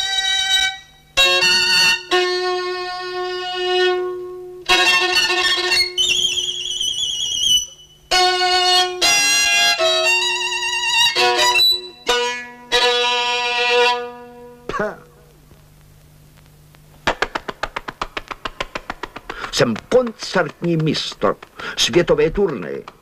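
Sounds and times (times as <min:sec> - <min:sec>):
solo violin: 0:00.0 - 0:14.6.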